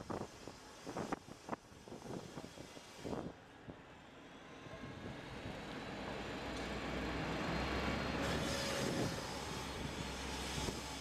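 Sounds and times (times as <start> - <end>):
bus driving past: 3.9 - 11.0.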